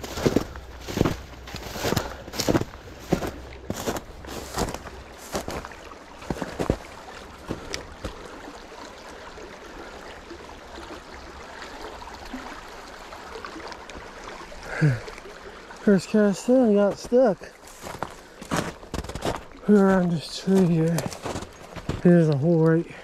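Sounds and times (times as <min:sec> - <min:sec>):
footsteps crunching through snow: 0:00.0 - 0:08.2, 0:16.8 - 0:22.4
stream babbling over stones: 0:00.0 - 0:23.0.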